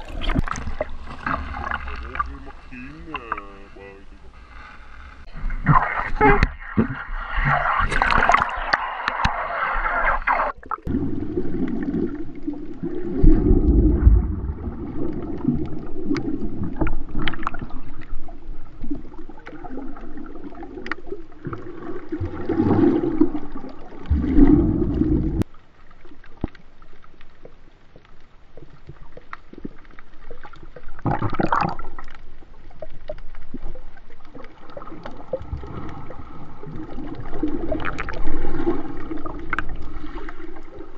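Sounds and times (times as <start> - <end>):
muffled underwater sloshing: 0.0 - 40.9
water splashing at surface: 5.3 - 18.1
small underwater clicks: 14.9 - 22.2, 25.4 - 40.9.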